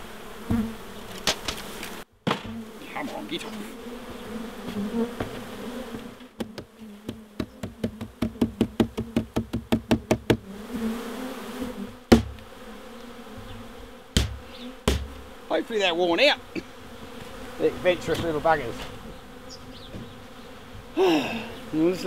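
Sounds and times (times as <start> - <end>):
bee swarm buzzing: 0.0 - 22.0
box knocking against hive: 0.5 - 3.2, 4.6 - 10.5, 12.0 - 12.6, 14.1 - 15.4, 19.8 - 20.2
heavy thump: 2.2 - 2.6, 6.4 - 10.4, 12.1 - 12.4, 14.2 - 15.3.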